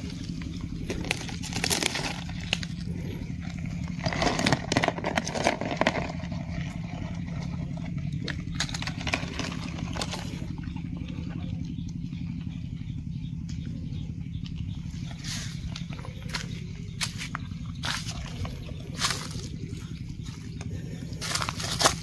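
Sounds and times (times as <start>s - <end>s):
dry leaves crackling and rustling: 0.0s - 2.8s, 15.2s - 22.0s
low motor hum: 0.0s - 22.0s.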